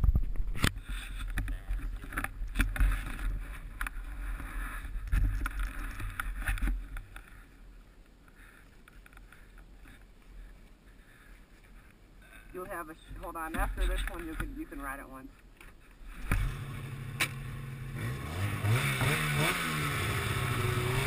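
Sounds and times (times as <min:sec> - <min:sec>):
faint rustling: 0:00.2 - 0:16.3.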